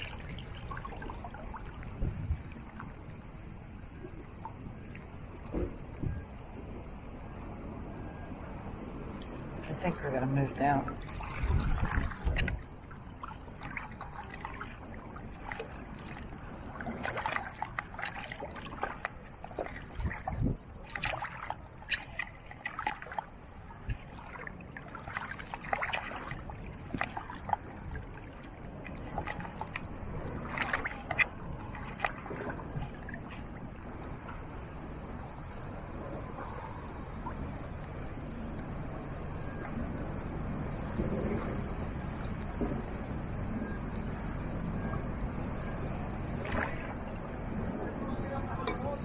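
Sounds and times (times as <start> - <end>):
shallow water sloshing and splashing: 0.0 - 7.4, 8.2 - 49.0.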